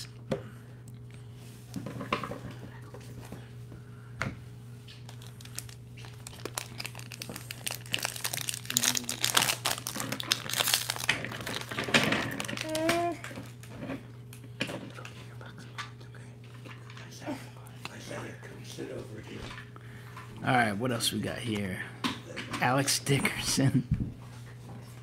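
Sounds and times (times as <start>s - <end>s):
plastic wrapper crinkling and tearing: 5.0s - 13.7s.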